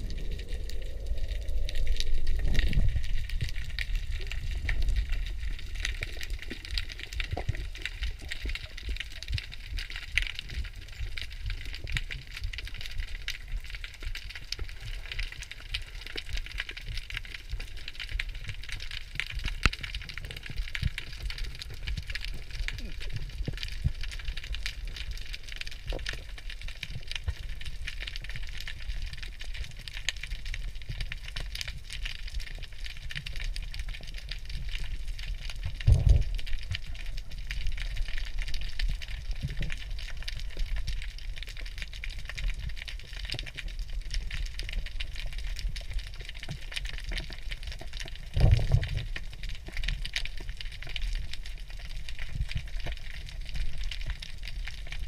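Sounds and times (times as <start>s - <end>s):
low underwater rumble: 0.0s - 55.0s.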